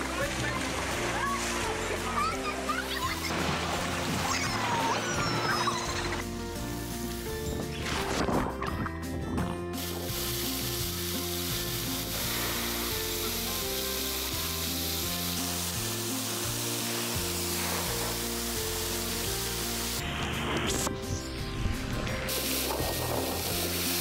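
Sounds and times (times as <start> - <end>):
water splashes: 0.0 - 6.2
spraying water hiss: 0.0 - 7.7, 9.7 - 24.0
background music: 0.0 - 24.0.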